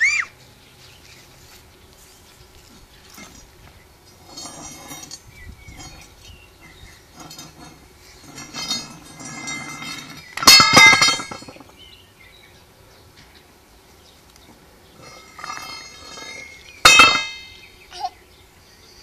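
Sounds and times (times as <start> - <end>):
metal rod scraping and clinking: 3.1 - 3.5, 4.2 - 11.7, 15.0 - 17.6.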